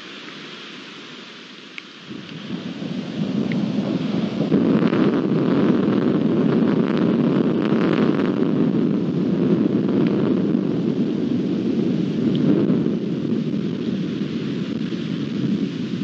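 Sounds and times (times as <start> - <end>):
rolling thunder: 2.1 - 16.0.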